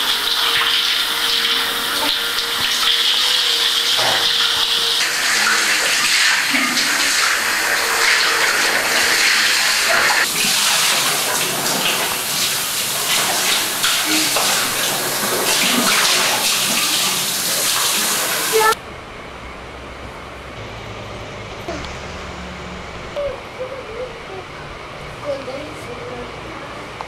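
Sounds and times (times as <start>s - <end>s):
tap water running into bucket: 0.0s - 18.8s.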